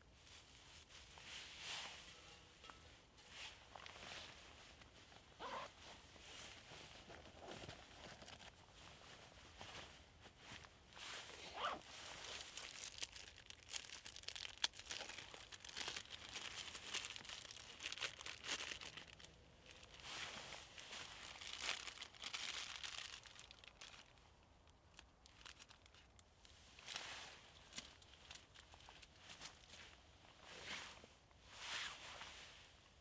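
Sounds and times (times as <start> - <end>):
dry grass crackly rustling: 0.2 - 30.0.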